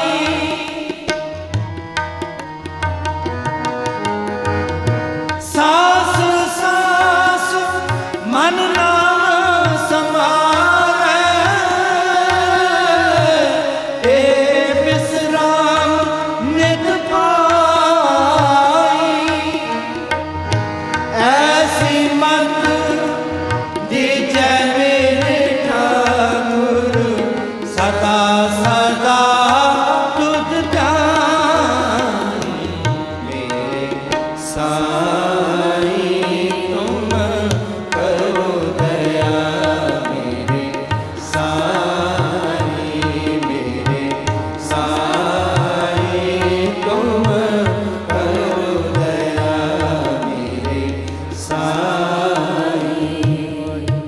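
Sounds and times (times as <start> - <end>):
voices singing a hymn: 0.0 - 1.1, 21.1 - 54.0
harmoniums: 0.0 - 54.0
tabla beat: 0.0 - 54.0.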